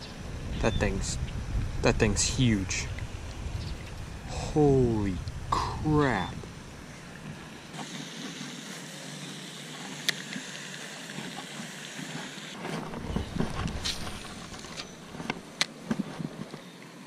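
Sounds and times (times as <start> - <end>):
wind blowing over microphone: 0.0 - 7.7, 12.6 - 16.4.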